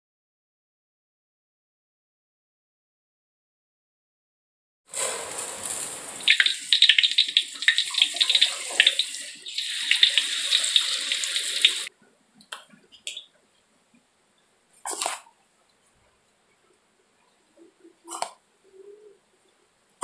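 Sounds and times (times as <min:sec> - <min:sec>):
faucet water splashing into pot: 0:04.9 - 0:11.9.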